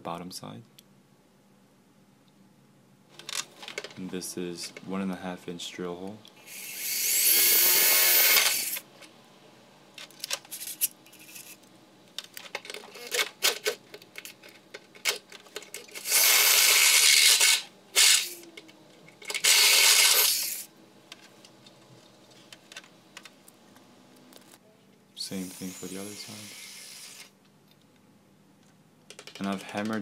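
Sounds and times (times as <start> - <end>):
hole saw cutting sheet steel: 6.5 - 8.8, 16.0 - 18.4, 19.4 - 20.6.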